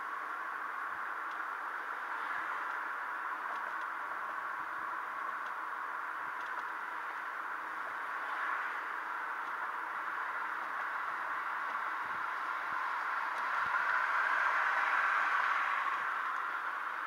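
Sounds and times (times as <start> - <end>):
road and wind noise in car: 0.0 - 17.0.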